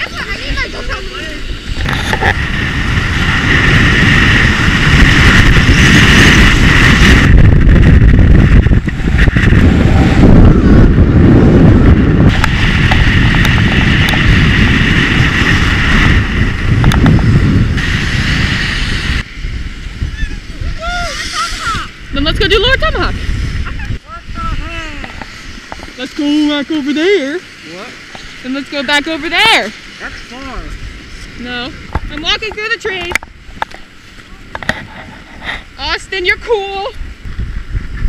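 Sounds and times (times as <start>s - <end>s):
skis hissing over snow: 0.0s - 7.3s, 17.2s - 23.8s
wind buffeting microphone: 0.0s - 38.0s.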